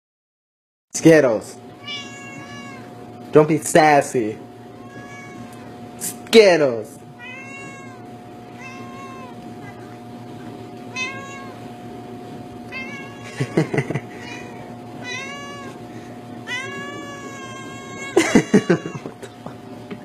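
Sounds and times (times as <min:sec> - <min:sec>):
cat meowing: 0:01.8 - 0:02.9, 0:04.7 - 0:05.8, 0:07.2 - 0:10.0, 0:10.9 - 0:11.7, 0:12.7 - 0:13.4, 0:14.2 - 0:15.8, 0:16.4 - 0:19.1.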